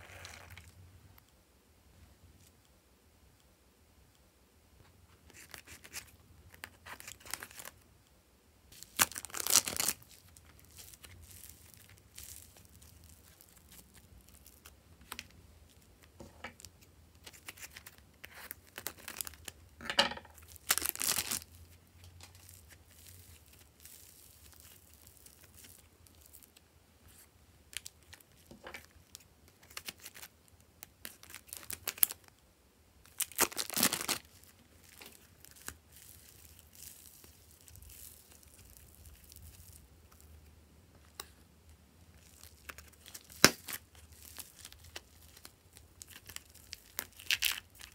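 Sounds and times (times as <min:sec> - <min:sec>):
plastic packets crinkling: 0:05.3 - 0:07.8, 0:08.8 - 0:19.6, 0:20.4 - 0:26.6, 0:27.7 - 0:30.3, 0:31.0 - 0:32.3, 0:33.1 - 0:40.3, 0:42.1 - 0:47.9.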